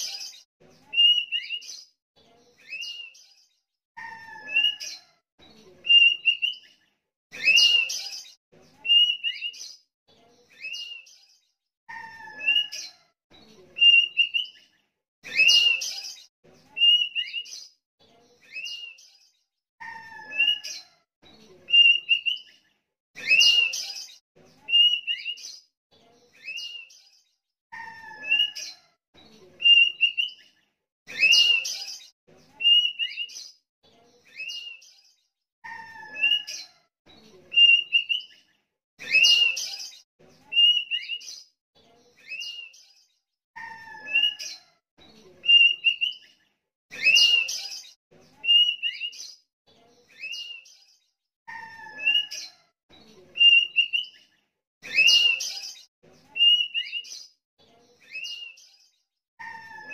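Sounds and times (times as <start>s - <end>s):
bird harsh phrases: 0.0s - 1.8s, 4.0s - 5.1s, 11.9s - 13.0s, 19.8s - 21.0s, 27.7s - 28.8s, 35.6s - 36.8s, 43.6s - 44.6s, 51.5s - 52.6s.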